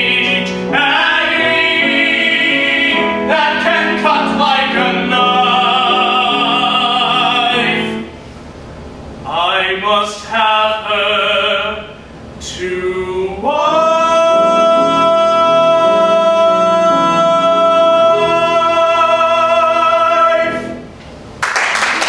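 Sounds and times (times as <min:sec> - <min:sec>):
two men singing a duet: 0:00.0 - 0:08.1, 0:09.3 - 0:20.8
piano accompaniment: 0:00.0 - 0:08.3, 0:13.3 - 0:21.0.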